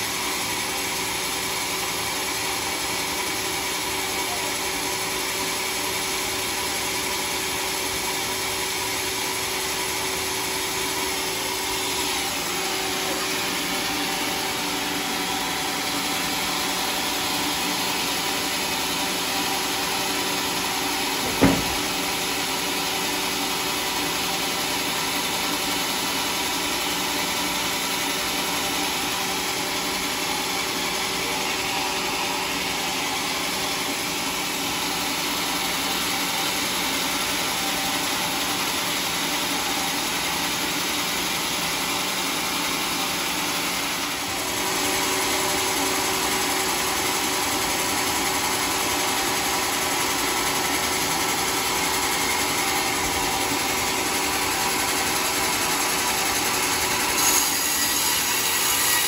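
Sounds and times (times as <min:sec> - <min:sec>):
sawmill motor and blade humming: 0:00.0 - 0:59.0
sharp knock: 0:21.2 - 0:22.0.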